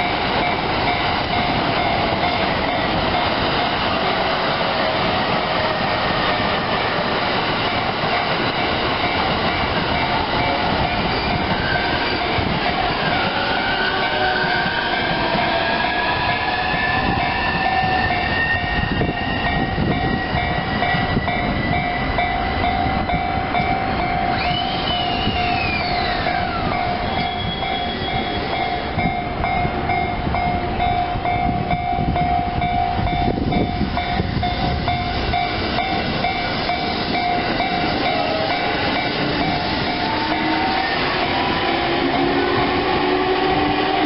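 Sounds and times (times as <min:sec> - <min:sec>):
trains rumbling over rails: 0:00.0 - 0:44.0.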